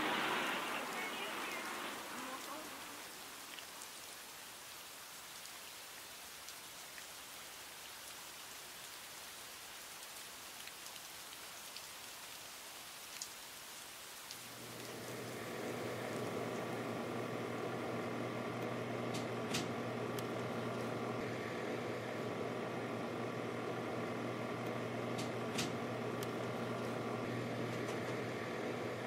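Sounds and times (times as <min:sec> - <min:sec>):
soft hiss with faint clicks: 0:00.1 - 0:05.5, 0:09.8 - 0:16.8, 0:18.5 - 0:21.0, 0:24.6 - 0:27.0
low steady hum: 0:14.4 - 0:29.0.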